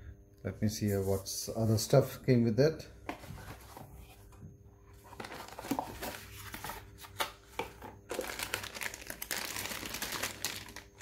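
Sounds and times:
plastic bags crinkling: 5.1 - 6.8, 8.1 - 11.0.

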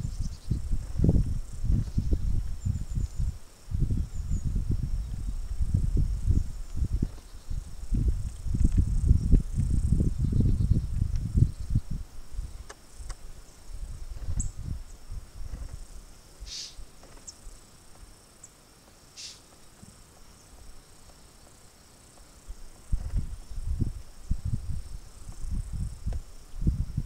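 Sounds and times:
low rumbling on microphone: 0.0 - 16.2, 22.5 - 27.0
louder insect buzzes: 0.0 - 18.2, 19.1 - 20.1
insects droning: 0.0 - 27.0.

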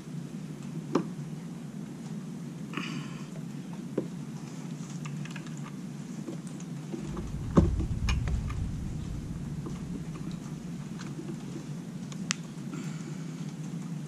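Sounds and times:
steady low hum: 7.0 - 11.9
low rumble: 7.0 - 12.0.

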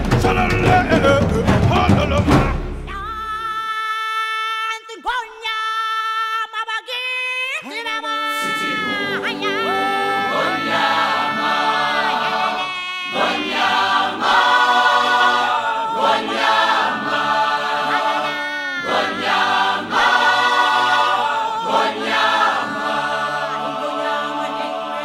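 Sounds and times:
choir singing: 8.2 - 25.0.

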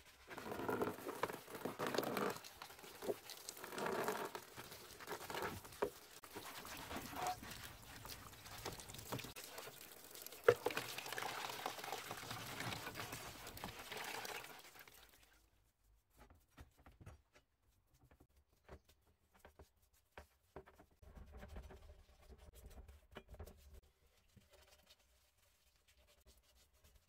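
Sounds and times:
sponge scrubbing metal: 0.0 - 10.1
water swishing: 1.3 - 15.2.

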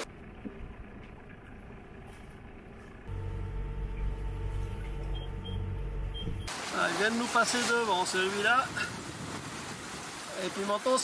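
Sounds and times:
boat engine droning: 0.0 - 7.6.

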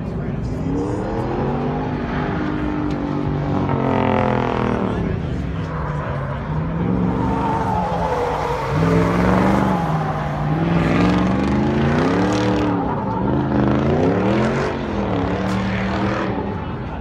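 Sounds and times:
truck engine revving hard: 6.6 - 16.6.

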